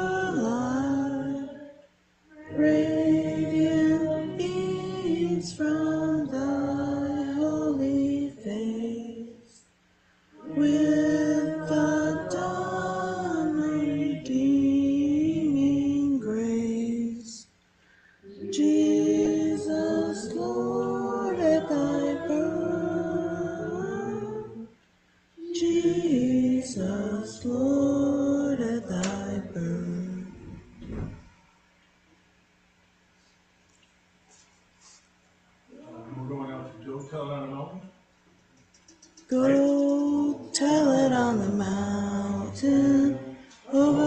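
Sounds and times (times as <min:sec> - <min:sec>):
voices singing a carol: 0:00.0 - 0:09.7, 0:10.3 - 0:17.5, 0:18.2 - 0:24.8, 0:25.4 - 0:31.1, 0:39.1 - 0:44.0.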